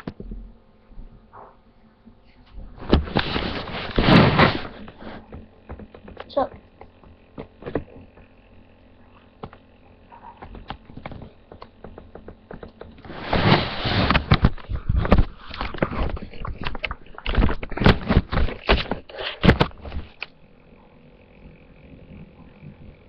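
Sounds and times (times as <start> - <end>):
rubbing and knocks on microphone: 2.8 - 8.3, 10.4 - 20.2.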